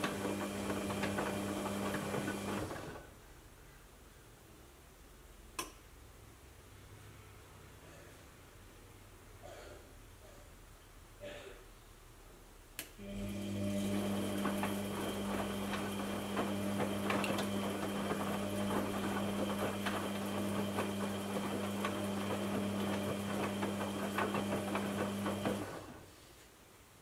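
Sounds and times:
washing machine motor hum: 0.0 - 3.2, 13.0 - 26.1.

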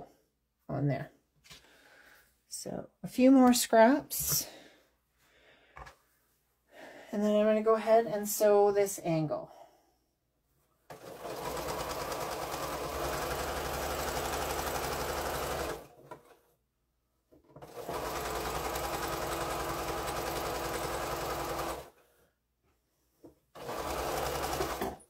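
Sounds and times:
sewing machine stitching: 10.9 - 16.3, 17.4 - 22.0, 23.6 - 25.0.

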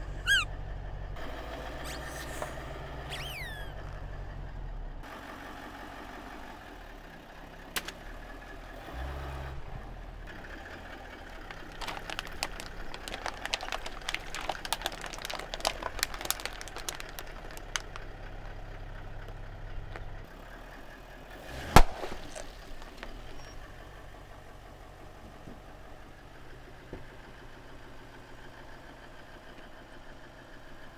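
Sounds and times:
car engine running at low speed: 0.0 - 30.9
plastic cups cracking under tyre: 11.2 - 20.2, 21.7 - 23.3
water balloon bursting: 21.7 - 22.7.

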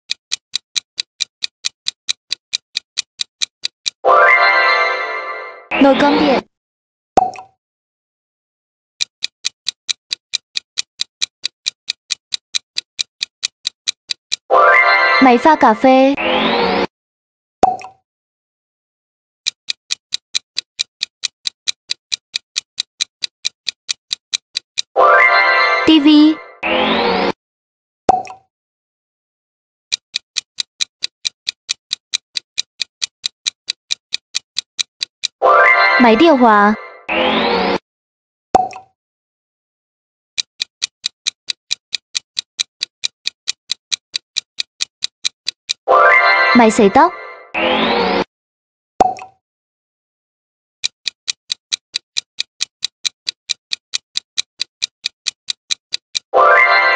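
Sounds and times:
clock ticking: 0.1 - 4.4, 9.0 - 16.0, 19.4 - 26.3, 29.9 - 37.2, 40.4 - 47.1, 50.8 - 56.9.

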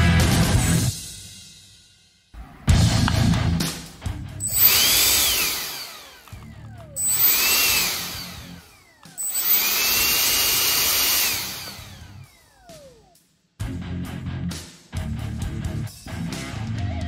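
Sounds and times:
electric ducted fan whine: 4.4 - 13.1.

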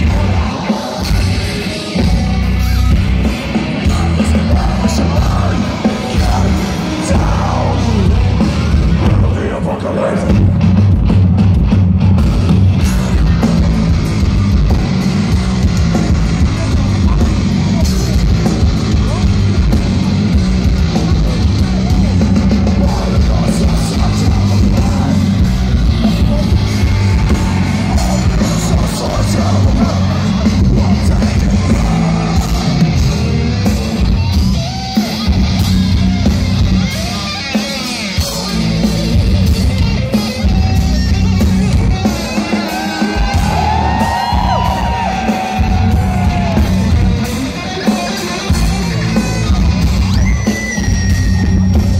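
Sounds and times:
person singing: 0.0 - 2.6, 3.5 - 10.6, 22.6 - 33.2
heavy metal band playing live: 0.0 - 51.9.

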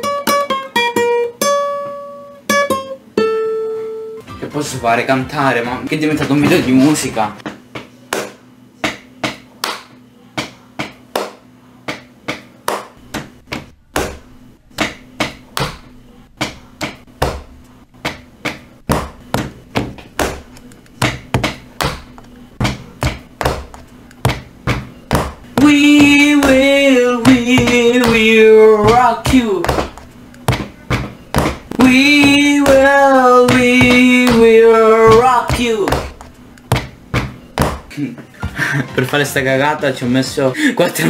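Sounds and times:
rhythmic taps and knocks: 7.4 - 38.7.

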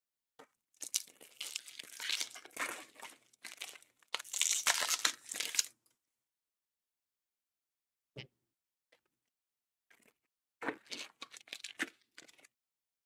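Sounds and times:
foil wrapper tearing and crinkling: 0.8 - 5.7.

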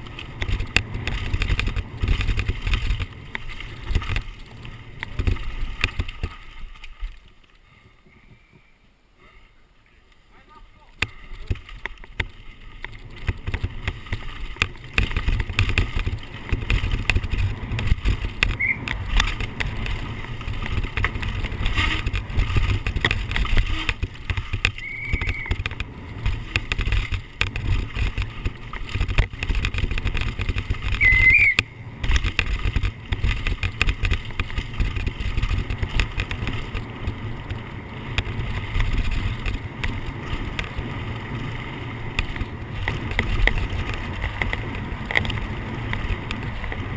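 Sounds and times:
bike rattling over bumps: 0.0 - 8.9, 9.9 - 46.9
high squeaks: 18.5 - 18.9, 24.7 - 25.6, 31.0 - 31.6.

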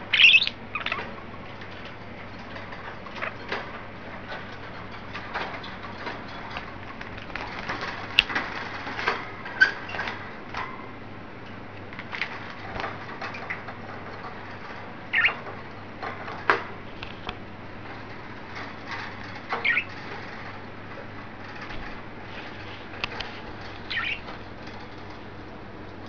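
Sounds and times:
budgerigars chirping: 0.1 - 1.1, 15.1 - 15.4, 19.6 - 20.0, 23.9 - 24.3.

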